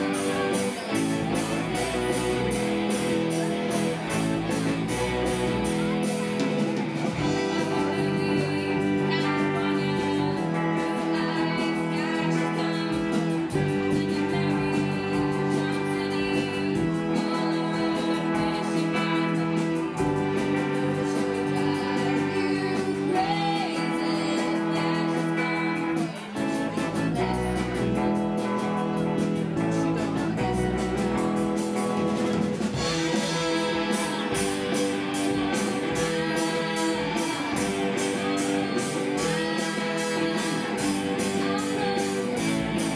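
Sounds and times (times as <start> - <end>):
drums: 0.0 - 42.9
electric guitars: 0.0 - 42.9
lead vocal singing: 29.6 - 42.9.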